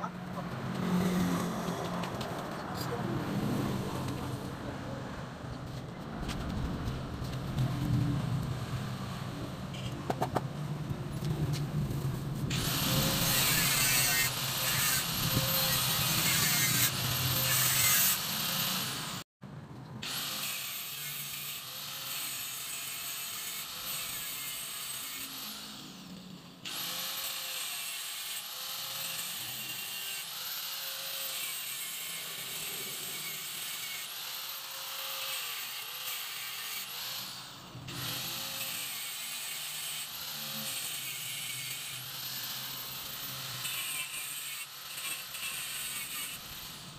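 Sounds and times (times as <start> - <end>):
handheld power tool running: 12.5 - 19.2, 20.0 - 46.9.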